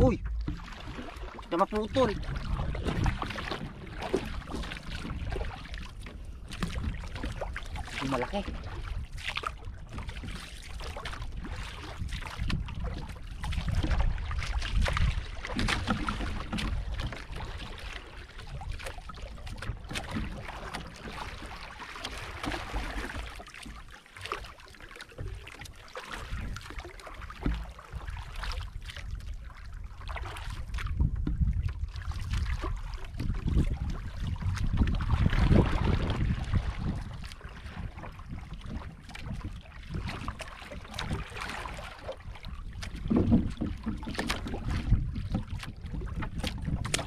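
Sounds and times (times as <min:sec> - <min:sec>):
wind buffeting microphone: 0:00.0 - 0:17.4, 0:30.6 - 0:47.0
paddle strokes splashing: 0:00.0 - 0:47.0
water sloshing: 0:00.0 - 0:47.0.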